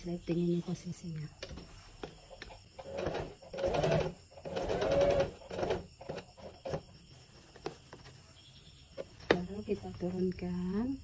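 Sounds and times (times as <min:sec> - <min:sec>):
sewing machine stitching: 0:02.8 - 0:06.8.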